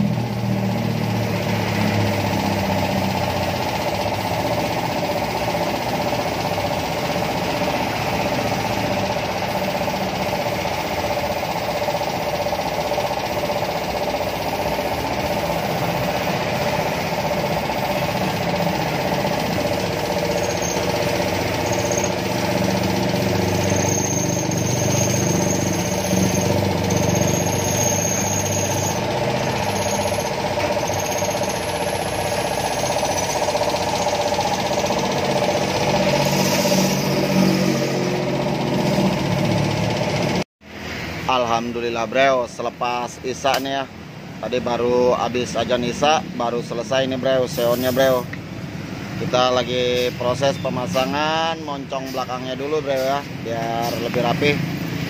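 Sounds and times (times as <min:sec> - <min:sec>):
air compressor running: 0:00.0 - 0:55.0
paint spray gun hissing: 0:02.0 - 0:40.4, 0:47.5 - 0:48.3.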